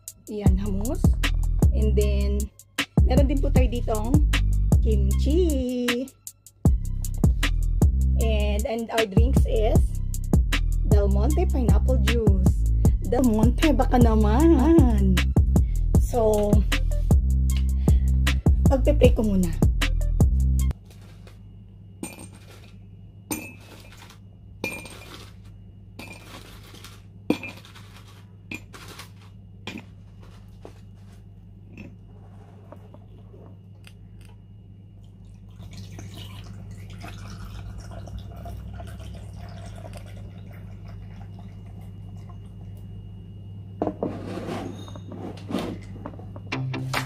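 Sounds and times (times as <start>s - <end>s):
steady low hum: 0.0s - 5.7s, 6.6s - 47.0s.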